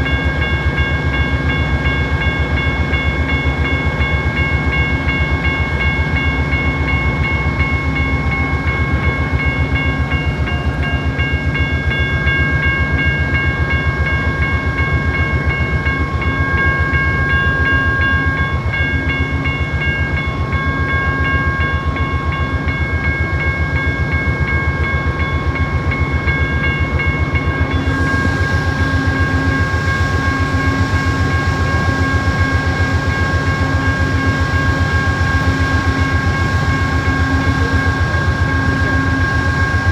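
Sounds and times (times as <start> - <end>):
diesel locomotive engine running: 0.0 - 39.9
high-pitched whine: 27.3 - 39.9.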